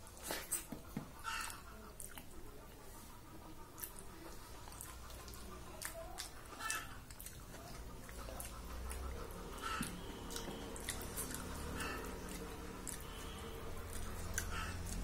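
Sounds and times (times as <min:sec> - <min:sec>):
wet chewing: 0:00.0 - 0:15.0
mouth clicks and smacks: 0:03.8 - 0:15.0.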